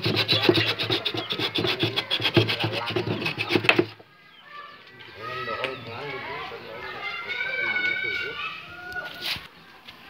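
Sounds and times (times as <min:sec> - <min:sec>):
hand saw cutting wood: 0:00.0 - 0:04.0.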